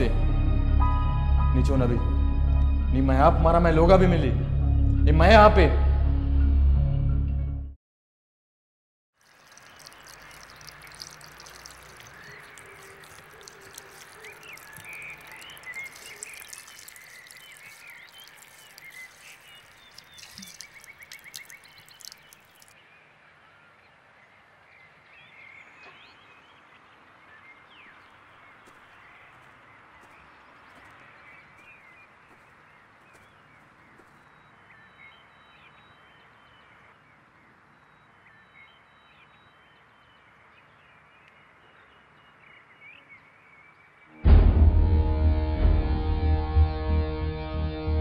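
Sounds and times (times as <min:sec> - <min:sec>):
birds chirping: 0:09.2 - 0:22.8, 0:24.8 - 0:44.0.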